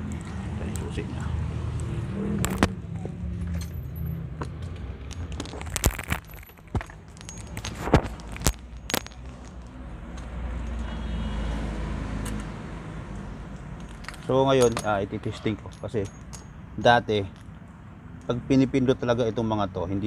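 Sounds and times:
sharp clicks and knocks: 0:01.8 - 0:03.8, 0:04.4 - 0:10.8
light metallic jangling: 0:03.3 - 0:09.7, 0:13.8 - 0:17.6.

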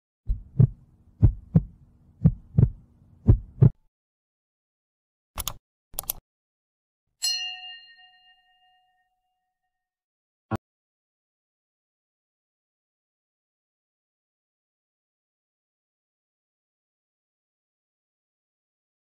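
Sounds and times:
heartbeat double beats: 0:00.3 - 0:03.8
quick double clicks: 0:05.4 - 0:06.2
notification bell ding: 0:07.2 - 0:09.4.

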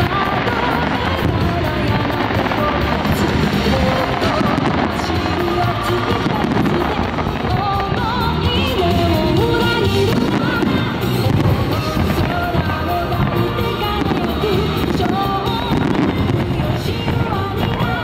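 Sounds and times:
fireworks bursting and crackling: 0:00.0 - 0:18.0
music with sung melody: 0:00.0 - 0:18.0.

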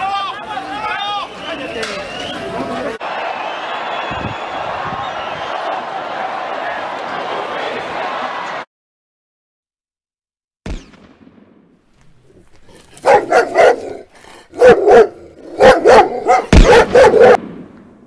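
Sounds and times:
dog barking: 0:13.0 - 0:17.4.

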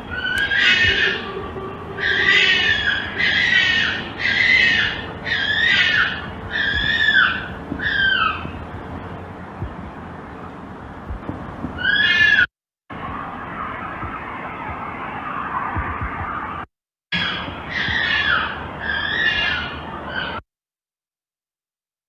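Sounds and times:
fox yelping calls: 0:00.0 - 0:08.6, 0:11.8 - 0:12.5, 0:17.2 - 0:20.4.

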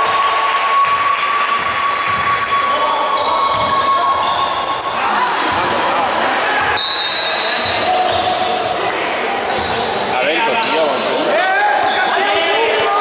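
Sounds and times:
basketball bouncing: 0:00.8 - 0:02.5, 0:03.4 - 0:04.4
sneakers squeaking: 0:00.8 - 0:11.0.

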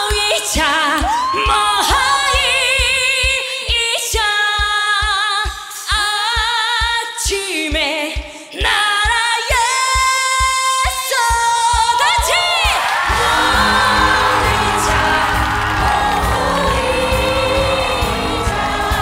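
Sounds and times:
woman singing with vibrato: 0:00.0 - 0:19.0
kick drum beat: 0:00.1 - 0:19.0
backing band playing: 0:13.1 - 0:19.0.

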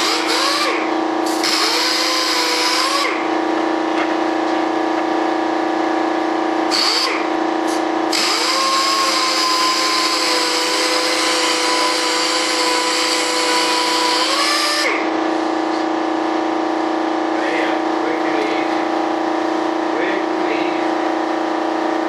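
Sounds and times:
steady hum: 0:00.0 - 0:22.0
sander whining: 0:08.1 - 0:15.1.

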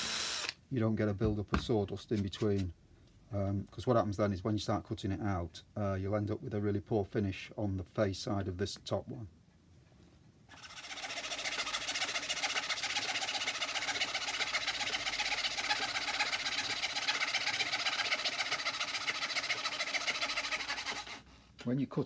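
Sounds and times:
treadle fretsaw cutting wood: 0:00.0 - 0:00.5, 0:10.5 - 0:21.2.

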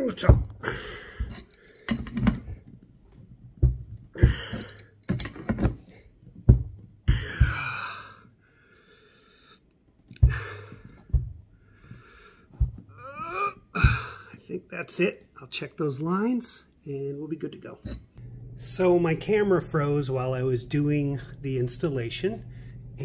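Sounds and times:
strained wheezy breathing: 0:00.6 - 0:02.1, 0:07.1 - 0:14.4.

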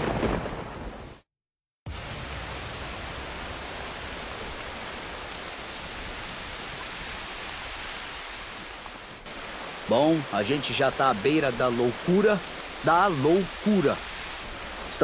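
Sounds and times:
rain falling: 0:01.9 - 0:15.0.

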